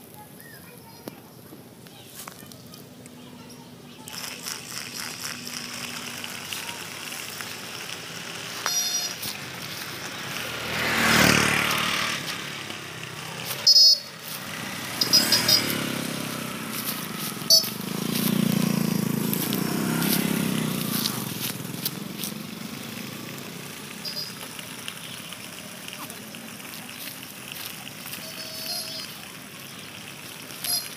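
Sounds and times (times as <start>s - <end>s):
motor vehicles passing: 0.0s - 30.9s
short sharp high sounds: 13.4s - 20.4s.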